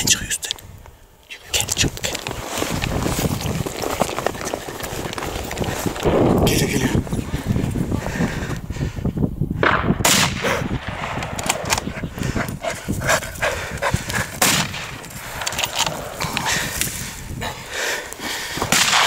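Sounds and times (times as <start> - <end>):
shotgun shots: 9.6 - 11.8, 14.4 - 15.0, 18.7 - 19.0.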